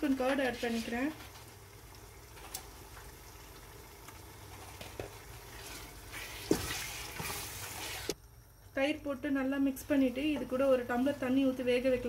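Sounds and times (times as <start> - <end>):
food sizzling in a metal pot: 0.0 - 8.2
wooden spatula stirring: 4.4 - 8.2.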